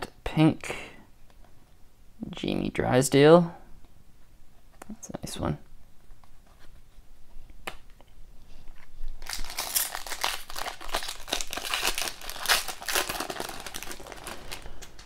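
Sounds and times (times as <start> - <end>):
foil wrapper crinkling and tearing: 9.2 - 15.0.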